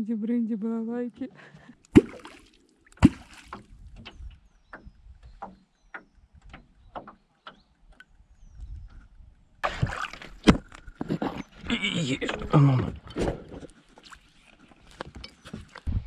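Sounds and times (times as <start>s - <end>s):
deep gulping plops on water: 1.8s - 4.0s, 9.6s - 11.5s.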